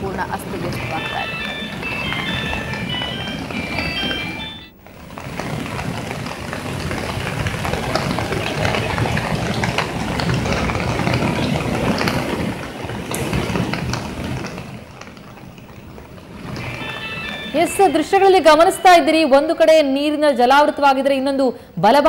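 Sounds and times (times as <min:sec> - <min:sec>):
floodwater rushing over a ledge: 0:05.4 - 0:15.4.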